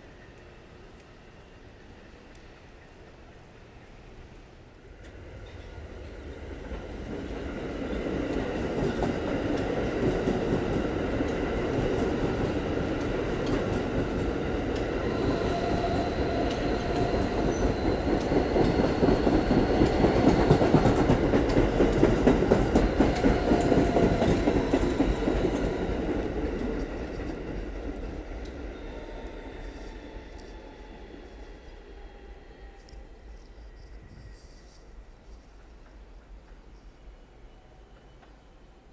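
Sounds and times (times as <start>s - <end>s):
subway train whine: 0.0s - 38.9s
subway train wheels clacking: 4.8s - 33.1s.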